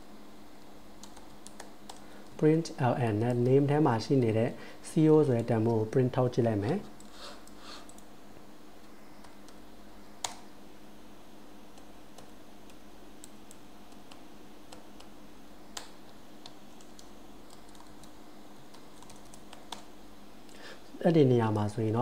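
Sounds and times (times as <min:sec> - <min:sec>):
faint steady hum: 0:00.0 - 0:22.0
computer keyboard typing: 0:01.0 - 0:04.4, 0:05.3 - 0:08.1, 0:15.7 - 0:19.9.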